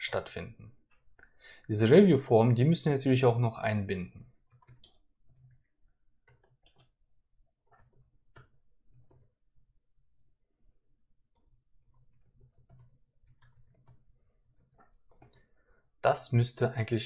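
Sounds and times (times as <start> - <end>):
computer keyboard clicks: 4.4 - 5.6, 6.2 - 7.0, 7.6 - 9.3, 11.3 - 15.5.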